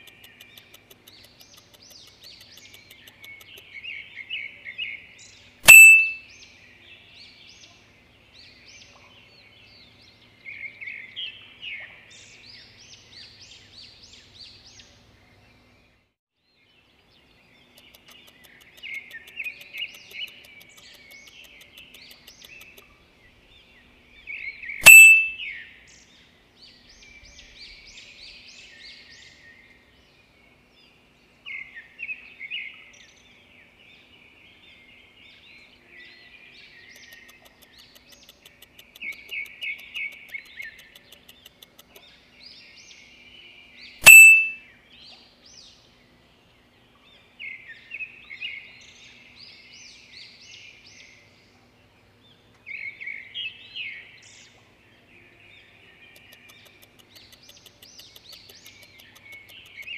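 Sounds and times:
small birds chirping: 0.0s - 59.9s
sharp click with ringing tone: 5.6s - 6.2s, 24.8s - 25.4s, 44.0s - 44.6s.

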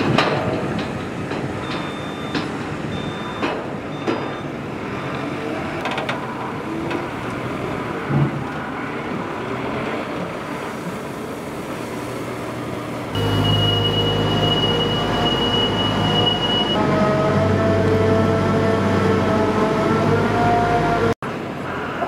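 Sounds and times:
telehandler engine hum: 0.8s - 22.0s
loader engine running: 13.0s - 21.2s
high steady whine: 13.2s - 16.8s.

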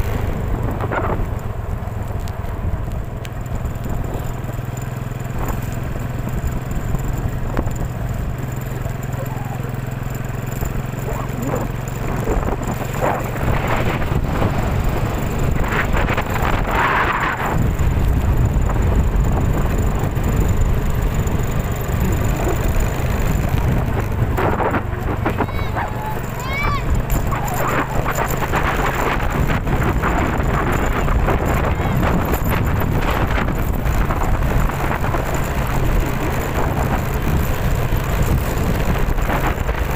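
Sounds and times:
wind buffeting microphone: 0.0s - 39.9s.

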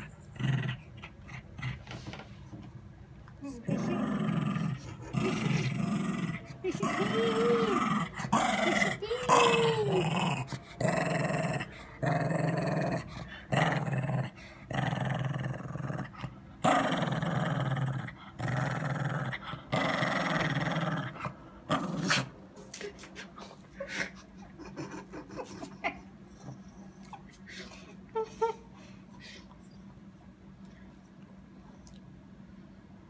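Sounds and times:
small dog growling: 0.0s - 2.0s, 3.4s - 22.3s.

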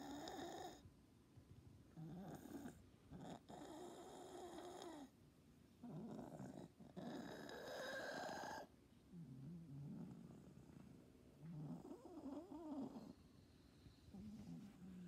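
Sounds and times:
cat snoring-like breathing: 5.9s - 10.5s.

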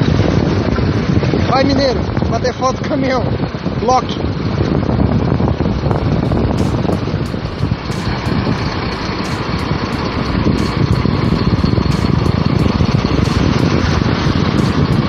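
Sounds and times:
wind buffeting microphone: 0.0s - 15.0s
truck engine running: 4.3s - 15.0s.

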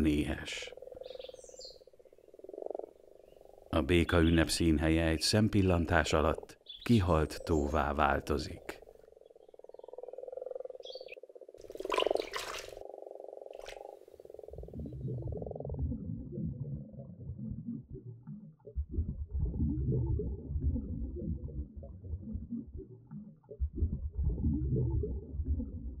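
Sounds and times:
frogs croaking: 0.0s - 26.0s
underwater rumbling and gurgling: 13.8s - 22.9s, 23.6s - 26.0s.

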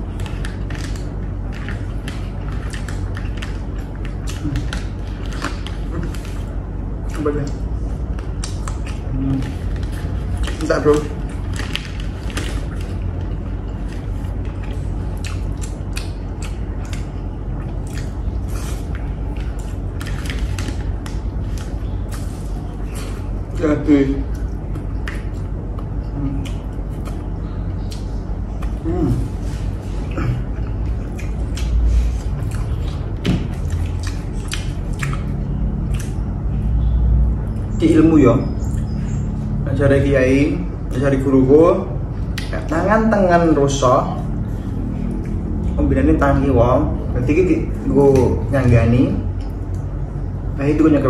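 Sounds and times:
chewing: 0.0s - 23.6s, 24.2s - 36.7s
steady low hum: 0.0s - 51.0s.

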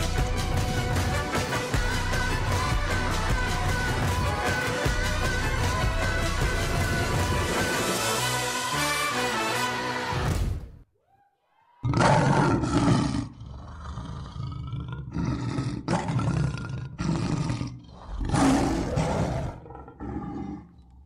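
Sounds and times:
big cat roaring: 11.8s - 20.9s.

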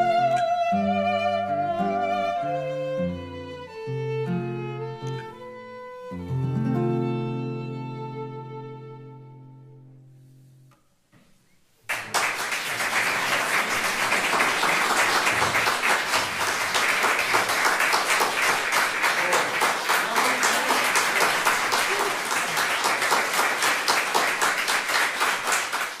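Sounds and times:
small audience applauding: 11.8s - 26.0s.

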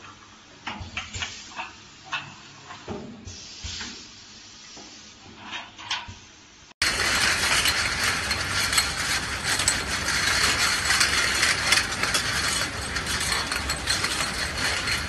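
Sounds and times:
bottle washing machine clattering: 6.8s - 15.0s
glass bottles clinking: 6.8s - 15.0s.

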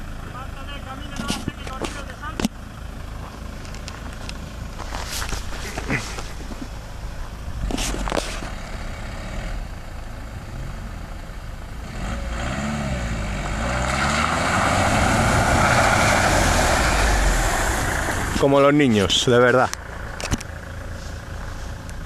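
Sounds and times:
tyres on loose dirt: 1.0s - 9.4s, 13.3s - 22.0s
suv engine revving: 1.5s - 22.0s.

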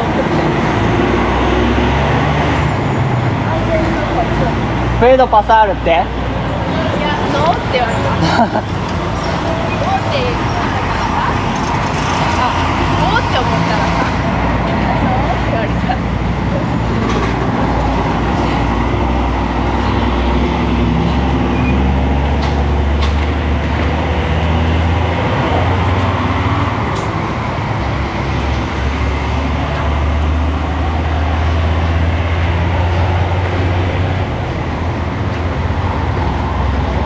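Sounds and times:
diesel engine droning: 0.0s - 37.0s
hiss of passing vehicles: 17.8s - 34.1s.

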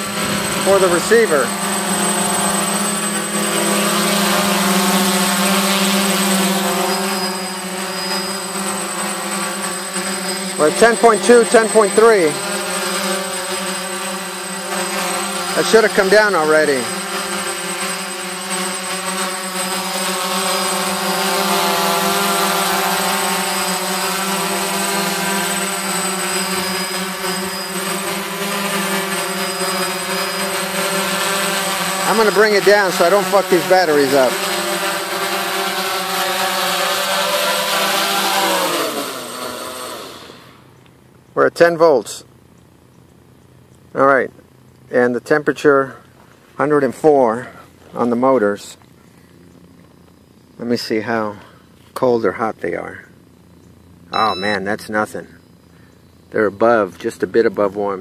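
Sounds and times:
drone motors buzzing: 0.0s - 41.0s, 53.7s - 54.8s.

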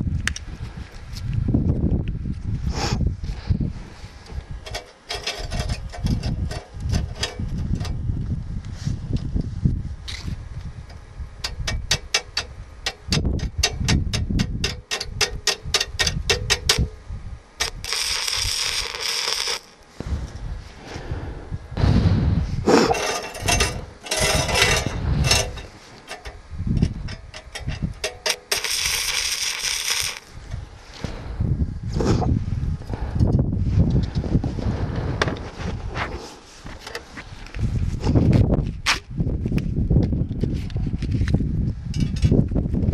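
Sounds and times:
welding arc crackling and sizzling: 4.2s - 8.0s, 10.1s - 17.0s, 17.6s - 21.5s, 22.6s - 31.3s
electrode striking arc clicks: 10.8s - 17.0s, 17.6s - 20.5s, 22.8s - 30.6s.

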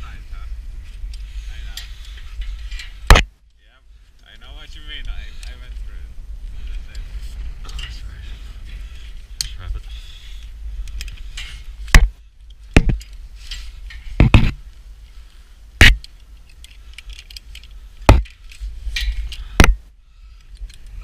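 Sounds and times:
wind rumble on microphone: 0.0s - 3.3s, 4.4s - 21.0s
metal clanks on steel: 1.7s - 3.3s, 17.0s - 19.8s.

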